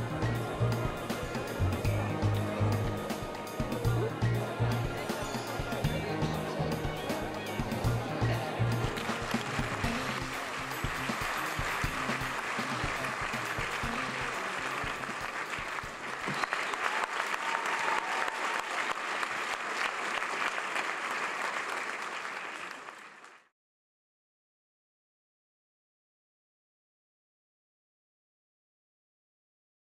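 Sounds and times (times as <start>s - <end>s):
music: 0.0s - 16.9s
audience applauding: 3.1s - 23.5s.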